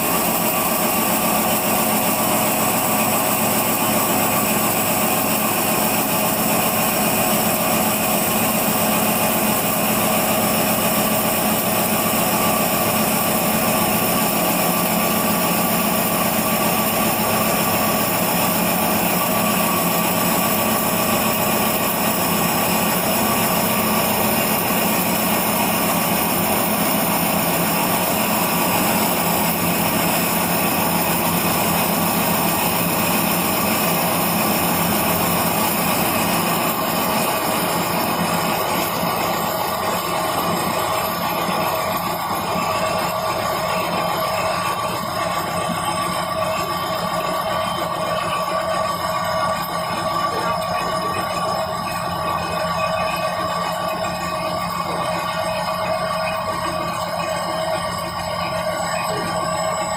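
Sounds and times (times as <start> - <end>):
cnc machine cutting: 0.0 - 59.9.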